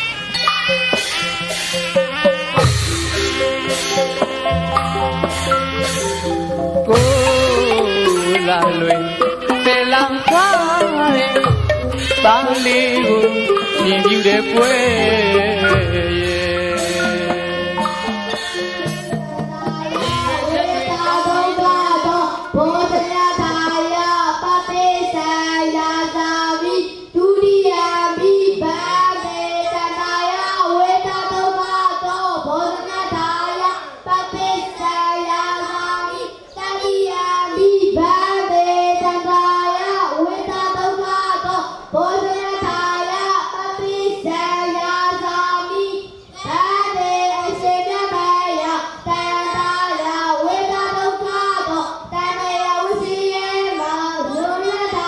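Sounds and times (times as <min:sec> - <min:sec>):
boys chanting in unison: 0:19.4 - 0:55.0.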